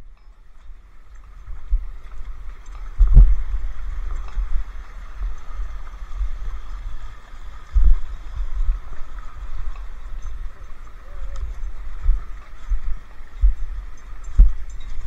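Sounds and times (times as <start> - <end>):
low rumble on microphone: 0.0 - 15.0
stream trickling over rocks: 0.0 - 15.0.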